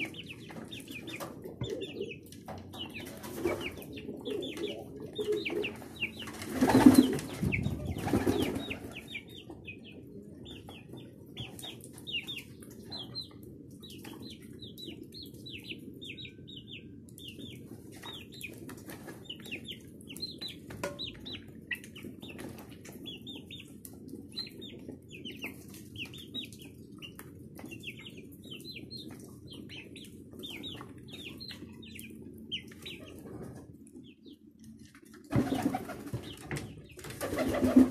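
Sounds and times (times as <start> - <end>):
chicks peeping: 0.0 - 37.9
wings flapping: 4.6 - 9.0, 35.3 - 37.9.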